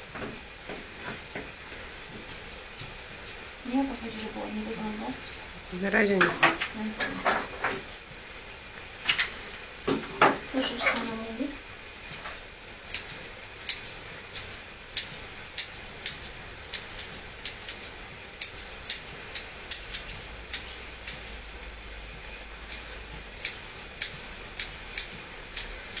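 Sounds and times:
scissors snipping fur: 2.2s - 5.5s, 12.9s - 21.4s, 22.6s - 26.0s.

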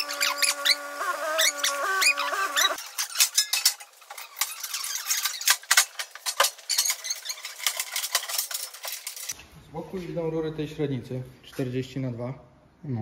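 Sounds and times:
metal clinks and rattles: 2.6s - 9.4s.

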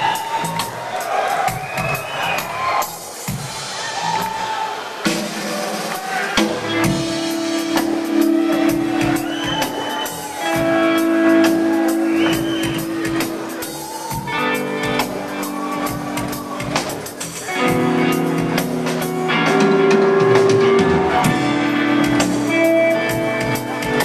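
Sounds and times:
drums hitting: 5.0s - 24.0s.

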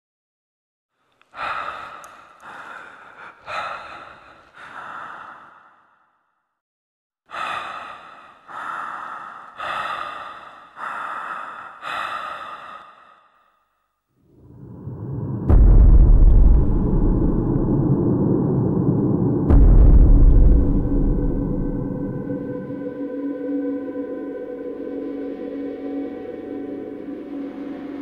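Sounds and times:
breathy exhales: 1.3s - 6.2s, 7.3s - 13.7s.

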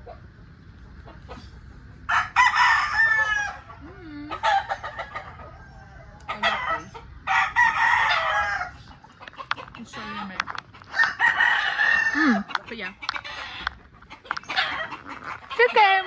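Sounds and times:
chickens clucking: 0.0s - 16.0s
rooster crowing: 2.1s - 8.9s, 10.9s - 12.6s, 14.4s - 15.9s.

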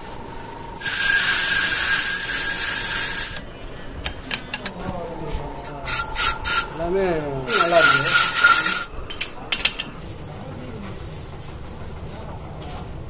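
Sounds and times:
steel bar scraping spinning hub: 0.8s - 3.5s, 4.1s - 5.0s, 5.6s - 9.9s.

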